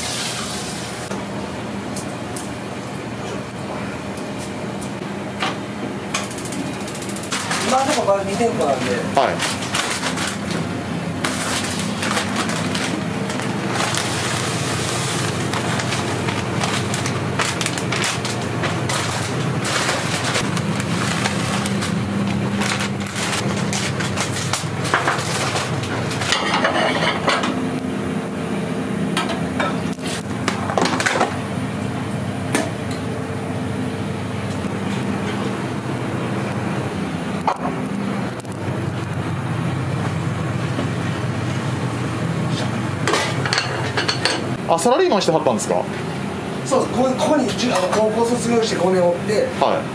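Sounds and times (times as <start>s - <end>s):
low hum of burners or fan: 0.0s - 49.9s
utensils scraping and clattering: 6.2s - 10.6s, 11.2s - 22.0s, 22.6s - 27.5s.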